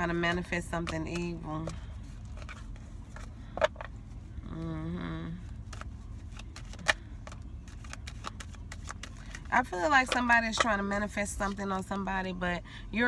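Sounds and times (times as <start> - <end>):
low rumble inside a car: 0.0 - 13.0
woman humming: 4.4 - 5.5.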